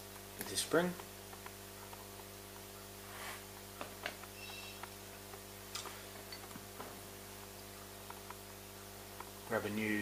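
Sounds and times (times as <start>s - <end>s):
steady low hum: 0.0s - 10.0s
faint high ring: 4.4s - 4.8s.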